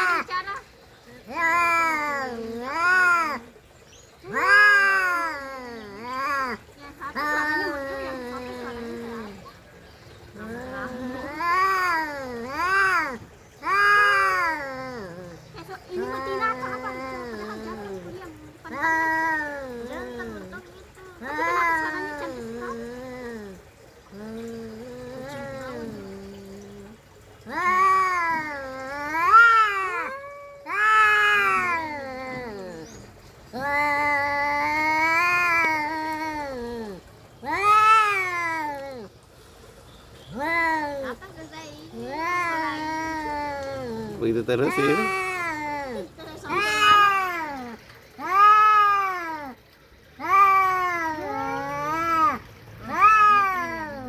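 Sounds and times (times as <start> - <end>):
cats yowling: 1.2 - 3.6, 4.2 - 9.5, 10.3 - 39.1, 42.0 - 54.0
cat growling: 50.2 - 54.0.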